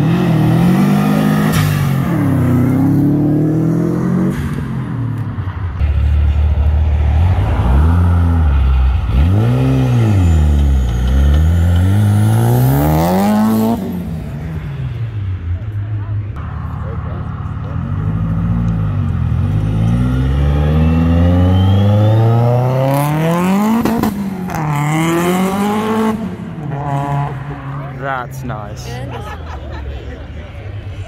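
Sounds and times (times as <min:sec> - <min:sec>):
turbocharged car engine revving: 0:00.0 - 0:04.7, 0:05.8 - 0:14.9, 0:16.4 - 0:28.1
car engine pulling away: 0:16.4 - 0:28.0.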